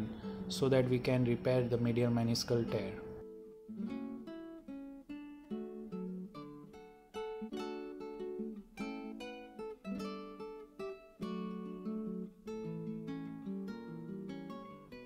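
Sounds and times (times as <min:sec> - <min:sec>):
acoustic guitar picking: 0:00.0 - 0:15.0.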